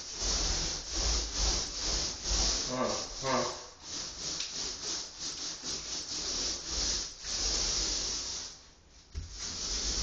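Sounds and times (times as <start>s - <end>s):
paint rasping on a wall: 0.0s - 10.0s.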